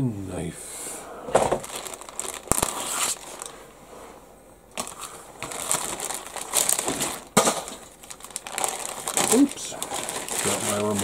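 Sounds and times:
plastic bag crinkling: 1.4 - 3.7, 4.7 - 11.0.

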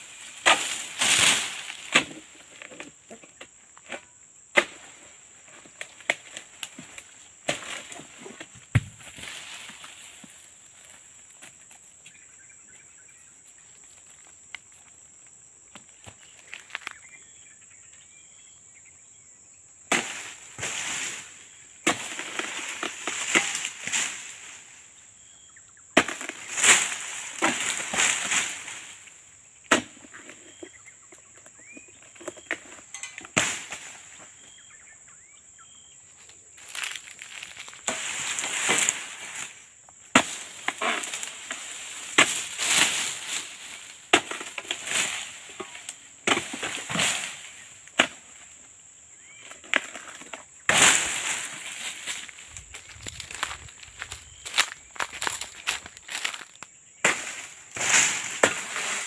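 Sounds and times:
fronds rustling: 0.0 - 2.9, 4.6 - 15.0, 36.2 - 48.6, 49.2 - 59.0
high insect whine: 0.0 - 59.0
sickle hacking through palm stalks: 0.1 - 2.9, 3.8 - 10.4, 19.9 - 24.8, 26.0 - 29.1, 29.7 - 30.7, 33.3 - 34.4, 36.6 - 48.5, 49.6 - 59.0.

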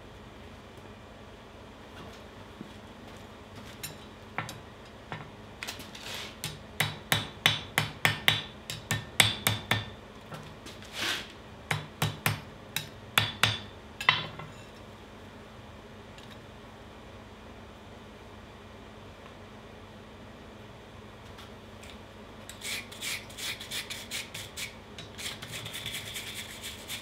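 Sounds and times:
hammer striking hot steel: 6.4 - 10.0, 11.7 - 14.2.

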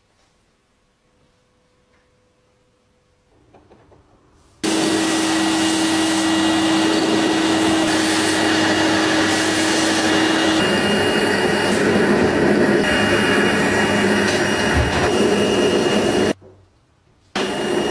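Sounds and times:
metal lathe running: 4.6 - 16.4.

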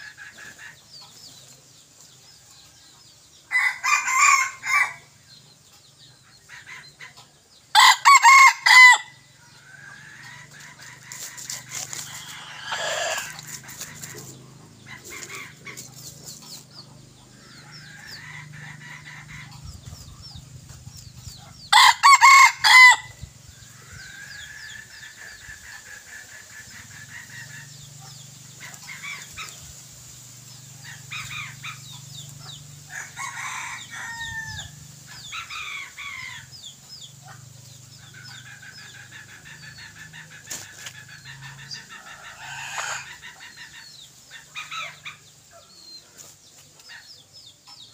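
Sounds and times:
rooster crowing: 3.5 - 5.1, 7.8 - 9.2, 12.2 - 13.4, 21.7 - 23.1, 32.9 - 34.8.

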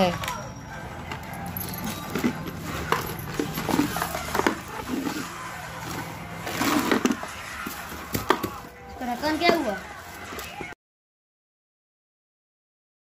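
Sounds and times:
plastic lunch box knocking: 5.9 - 8.7.

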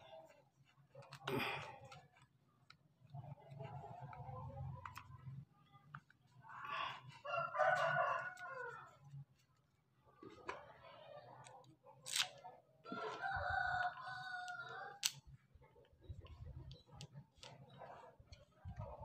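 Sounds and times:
rooster crowing: 7.2 - 8.9, 12.9 - 15.0.

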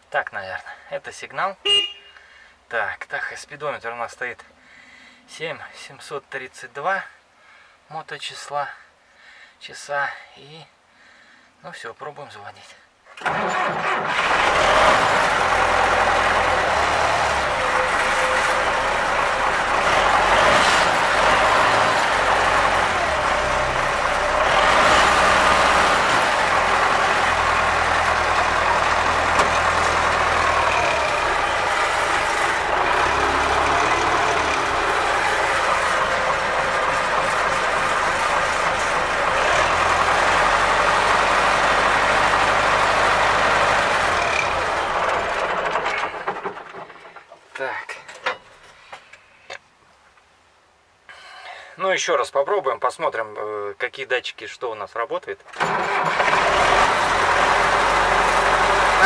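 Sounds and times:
tractor diesel engine running: 13.2 - 47.4, 55.6 - 59.0.

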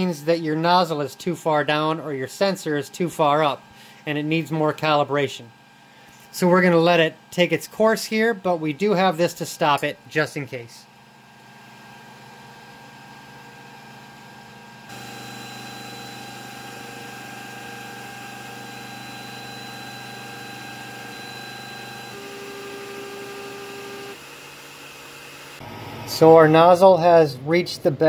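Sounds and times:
stepper motors whining: 14.9 - 24.2.

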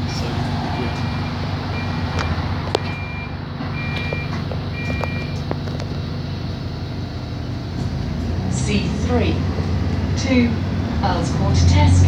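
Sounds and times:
bus engine idling: 0.0 - 12.0
bus door warning beeps: 0.7 - 5.6.

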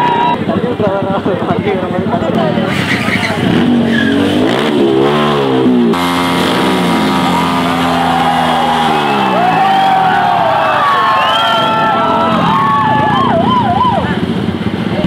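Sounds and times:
crowd whooping and shouting: 0.0 - 0.5, 7.0 - 14.2
motorcycle engine revving: 0.1 - 10.9.

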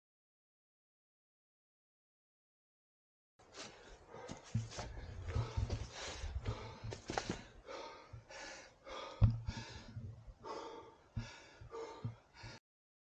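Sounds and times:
man breathing hard: 3.6 - 12.6.

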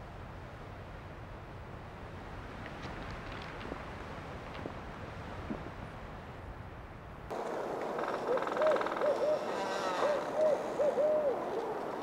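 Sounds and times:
owl hooting: 8.0 - 11.8.

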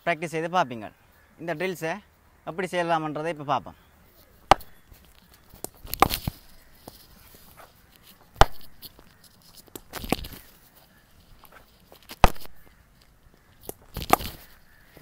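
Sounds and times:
scuffing noises: 4.1 - 15.0
cricket bat hitting ball: 4.5 - 4.8, 8.4 - 8.8, 12.2 - 12.6.

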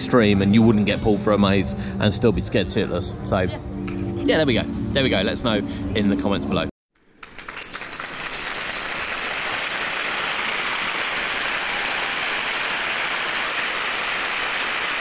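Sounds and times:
crowd applauding: 7.0 - 15.0.

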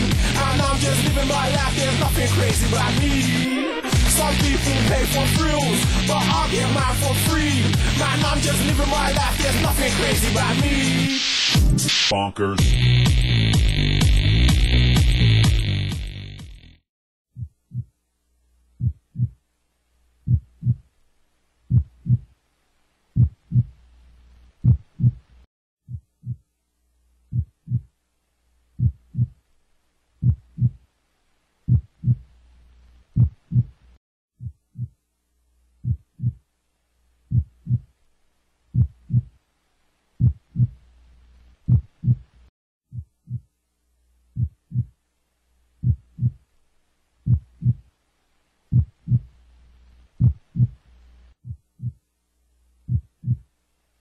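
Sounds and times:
heartbeat thumps: 3.9 - 10.8, 17.4 - 17.9, 18.8 - 19.4, 20.2 - 20.9, 21.7 - 22.3, 23.2 - 23.8, 24.6 - 26.4, 27.3 - 27.9, 28.8 - 29.4, 30.2 - 30.8, 31.7 - 32.3, 33.2 - 33.8, 34.4 - 35.0, 35.8 - 36.4, 37.3 - 37.9, 38.7 - 39.3, 40.2 - 40.8, 41.7 - 43.5, 44.3 - 44.9, 45.8 - 46.4, 47.2 - 47.9, 48.7 - 49.3, 50.2 - 52.0, 52.9 - 53.5.

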